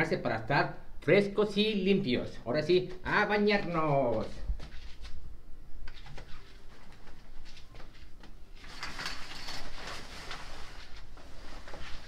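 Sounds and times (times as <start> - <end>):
soft rustling and shuffling: 2.7 - 12.0.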